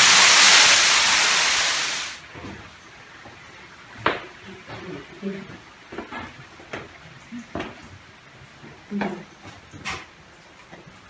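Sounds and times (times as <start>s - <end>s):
waterfall roaring: 0.0s - 2.2s.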